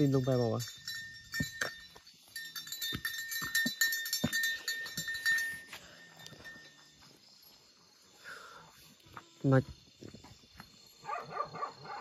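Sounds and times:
goats moving with clicks and knocks: 0.0s - 7.9s
thin steady high tone: 0.0s - 9.7s.

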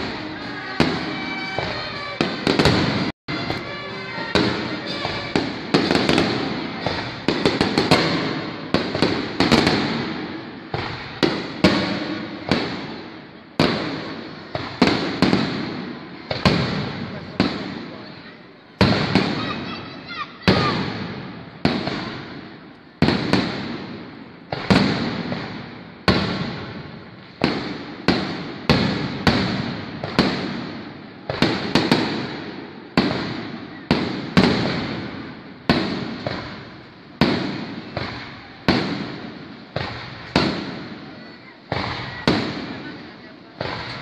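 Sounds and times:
fireworks bursting with loud bangs: 0.0s - 44.0s.

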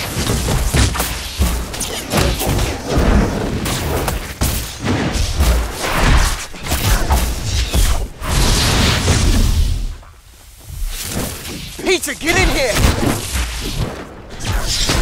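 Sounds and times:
magic blasts and booms: 0.0s - 9.9s, 11.2s - 15.0s.

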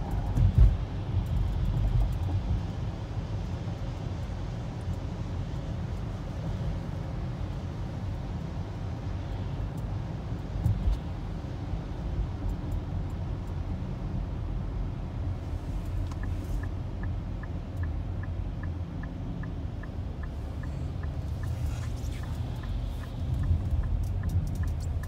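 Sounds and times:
car engine and tyre rumble: 0.0s - 25.0s
turn signal ticking: 9.0s - 25.0s.

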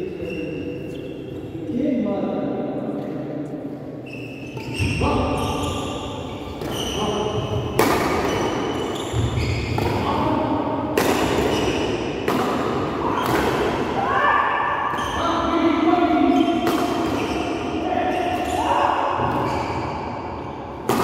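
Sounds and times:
racket hitting shuttlecock: 7.7s - 10.0s, 10.9s - 13.9s, 16.6s - 17.6s.

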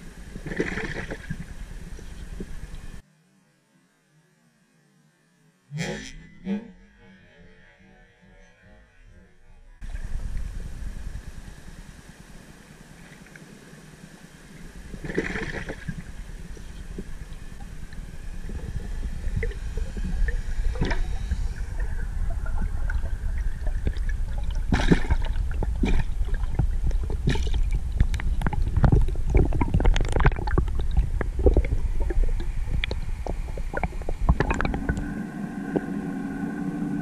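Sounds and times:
steady humming tone: 0.0s - 37.0s
underwater rumble: 9.8s - 13.7s, 14.4s - 37.0s
clicks and knocks underwater: 23.8s - 35.1s.

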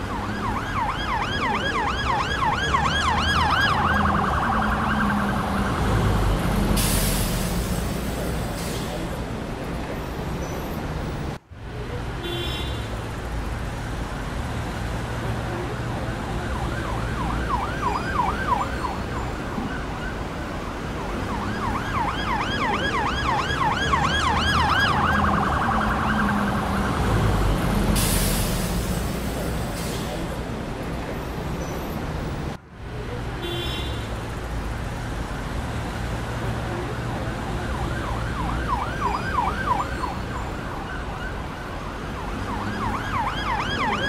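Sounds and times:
emergency siren yelping: 0.0s - 6.4s, 16.1s - 27.5s, 36.9s - 44.0s.

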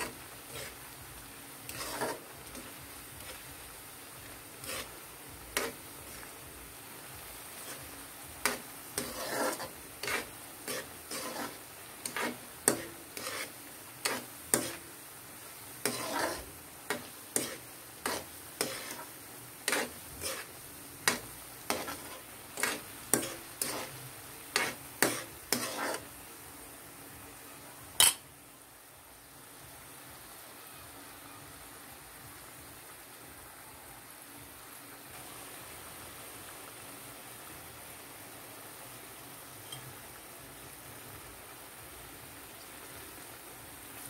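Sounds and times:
spatula scraping a wok: 0.0s - 26.2s
oil sizzling: 0.0s - 44.0s.

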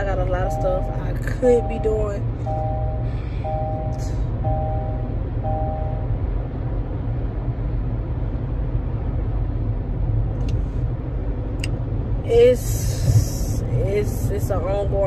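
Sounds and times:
car cabin road rumble: 0.0s - 15.0s
two-note electronic beep: 0.3s - 6.1s.

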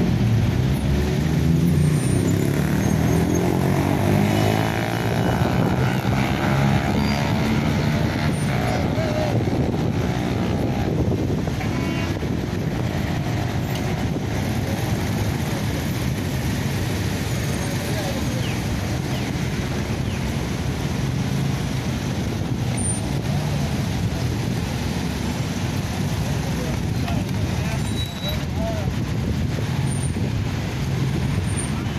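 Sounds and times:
road traffic engines: 0.0s - 31.9s
indistinct voices: 4.1s - 12.2s.

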